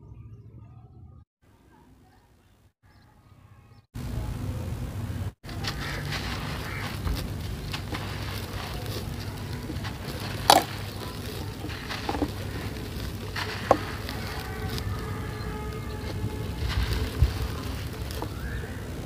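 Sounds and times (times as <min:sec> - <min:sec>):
grit pouring: 0:05.4 - 0:19.0
gritty crunching of crumbling pots: 0:05.4 - 0:19.0
sharp cracks: 0:05.4 - 0:19.0.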